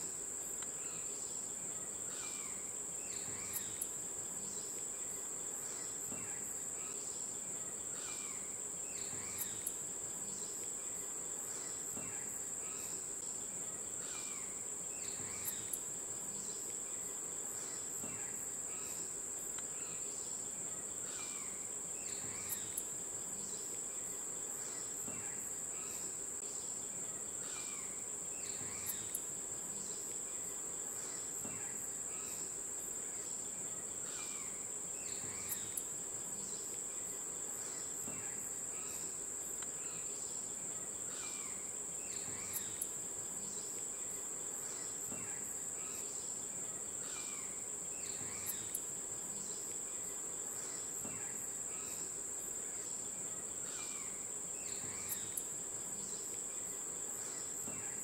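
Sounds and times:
insects trilling drone: 0.0s - 58.0s.

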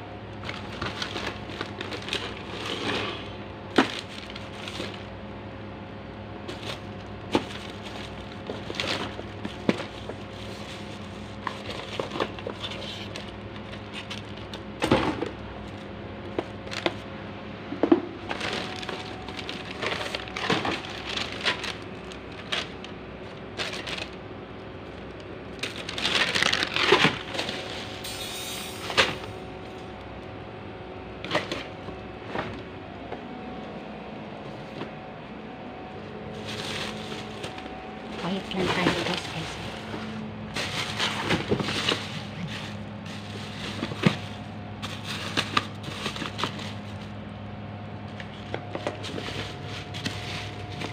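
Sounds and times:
plastic and metal items clattering: 0.4s - 5.1s, 6.5s - 17.0s, 17.8s - 24.2s, 24.8s - 28.0s, 31.2s - 32.6s, 36.3s - 47.2s, 48.2s - 50.9s
plastic bags rustling: 0.4s - 5.2s, 6.4s - 14.9s, 18.2s - 30.0s, 35.8s - 47.2s, 48.2s - 50.9s.

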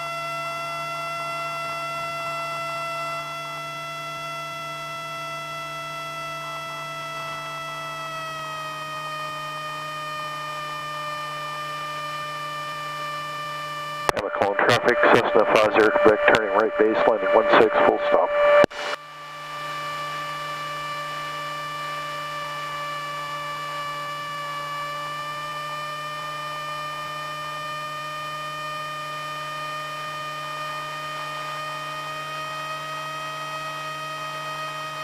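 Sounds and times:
electrical hum and whine: 0.0s - 35.0s.

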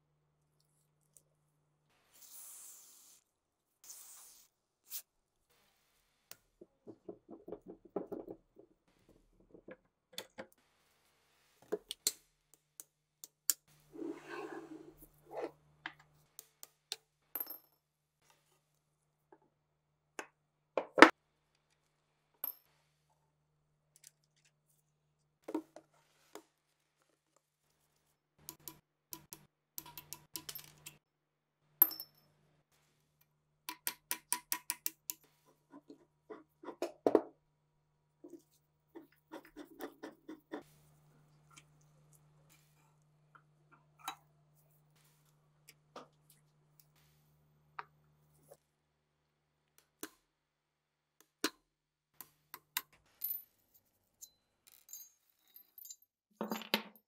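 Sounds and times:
metal parts clinking and knocking: 29.8s - 31.0s, 54.2s - 57.0s.

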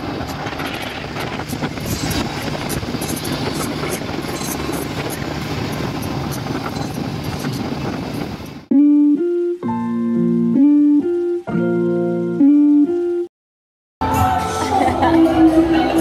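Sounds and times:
boat engine running: 0.0s - 8.7s
water noise: 0.0s - 9.5s
wind: 0.0s - 13.3s, 14.0s - 16.0s.

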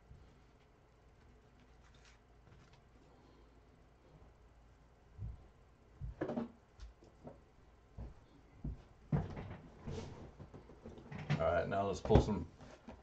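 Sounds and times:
packaging rustling: 1.5s - 2.9s.

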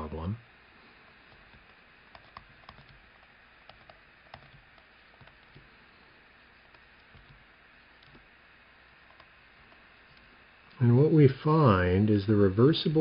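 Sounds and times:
low steady hiss: 0.0s - 13.0s
stylus tapping on a tablet: 1.3s - 5.7s, 6.6s - 7.4s.

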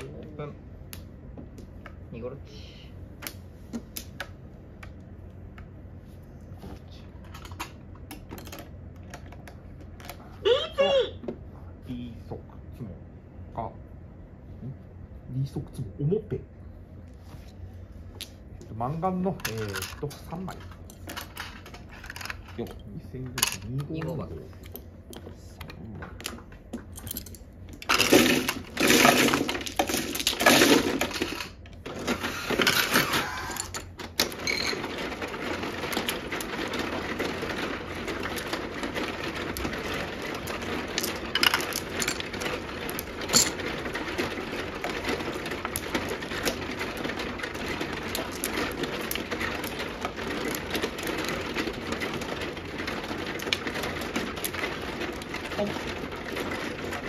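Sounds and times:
shuffling mechanism rattling whirr: 16.9s - 57.0s
mahjong tiles clattering: 18.9s - 57.0s.

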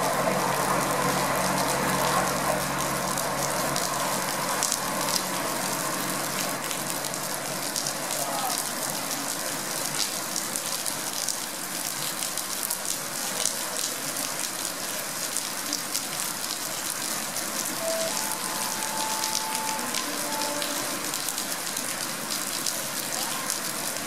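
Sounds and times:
heavy rain falling: 0.0s - 24.0s
faint short tones: 17.7s - 21.3s.

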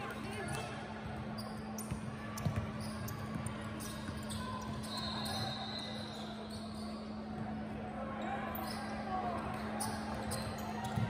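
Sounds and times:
basketball bouncing on court: 0.1s - 4.9s.

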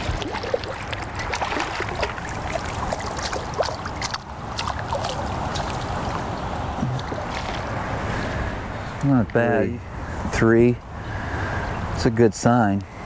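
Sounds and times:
fish splashing at water surface: 0.0s - 6.4s.

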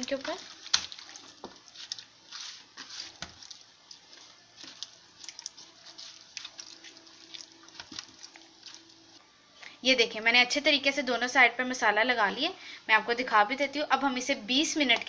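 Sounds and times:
hands squishing wet marinade: 0.0s - 9.0s.

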